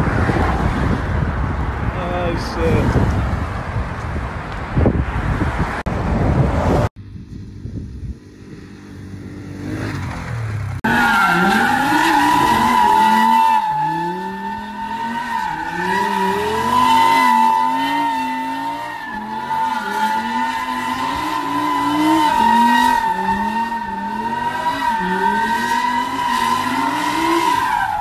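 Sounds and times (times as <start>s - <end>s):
car engine revving: 8.4s - 28.0s.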